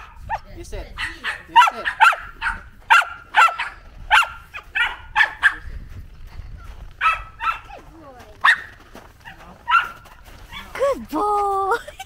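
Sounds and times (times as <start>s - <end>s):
dog barking: 0.0s - 5.7s, 7.0s - 7.8s, 8.4s - 10.7s.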